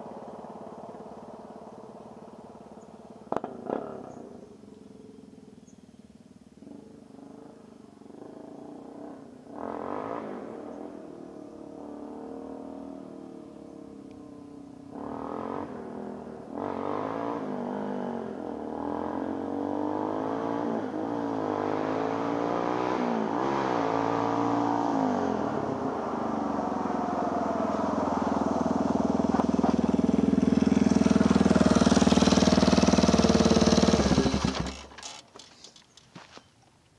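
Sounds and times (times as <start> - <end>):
quad bike engine revving: 3.3 - 4.2, 8.1 - 35.2.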